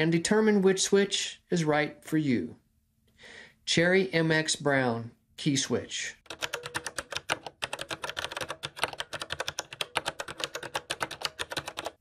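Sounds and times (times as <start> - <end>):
mechanical keyboard typing clicks: 6.2 - 12.0.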